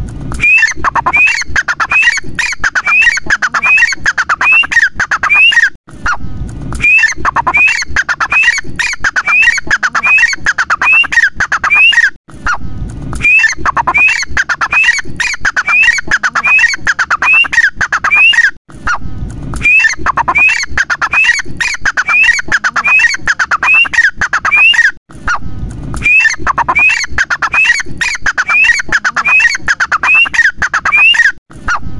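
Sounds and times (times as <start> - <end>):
francolin calling: 0.4 - 5.6.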